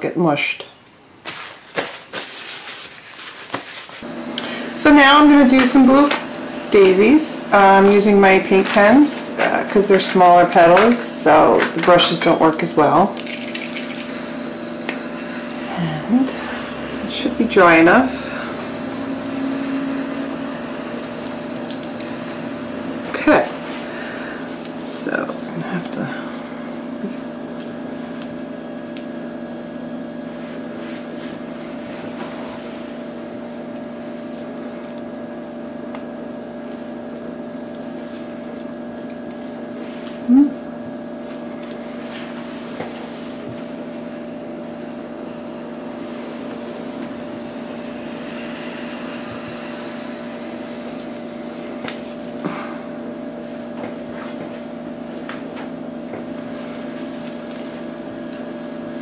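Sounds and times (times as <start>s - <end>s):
appliance mechanical hum: 0.0s - 59.0s
short rising tone: 15.7s - 21.2s, 47.4s - 51.5s.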